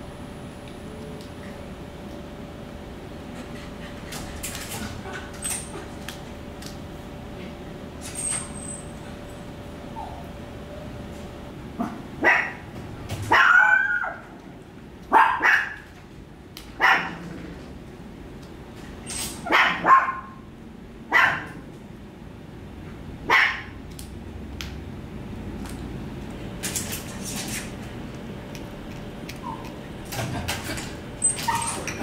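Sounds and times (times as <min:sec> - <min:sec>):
puppy gnawing a chew: 0:25.6 - 0:30.9.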